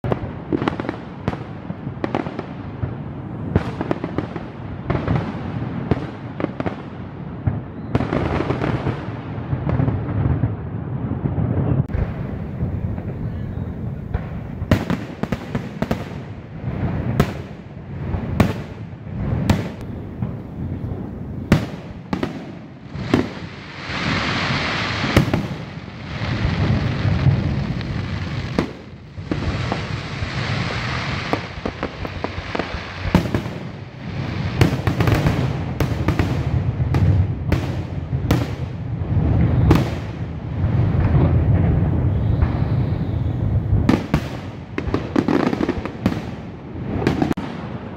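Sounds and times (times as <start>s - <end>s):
firework crackling: 0.0s - 47.9s
firework shells bursting: 21.5s - 35.6s.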